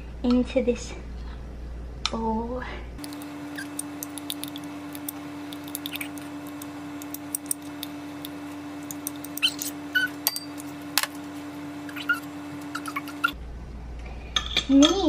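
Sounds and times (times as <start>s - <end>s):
steady low hum: 0.0s - 14.5s
utensil scraping peanut butter: 3.0s - 11.3s.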